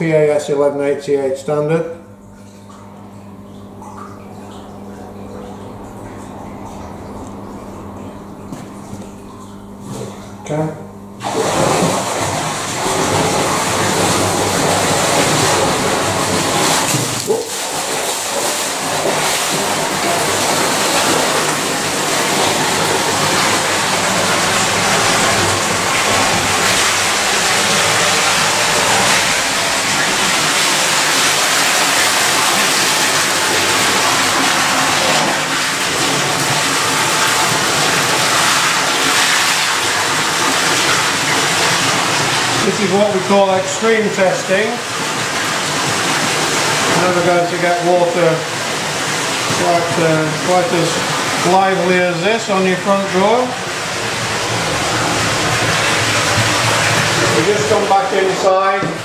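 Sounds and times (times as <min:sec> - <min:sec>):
water jetting from hoses: 0:11.2 - 0:59.0.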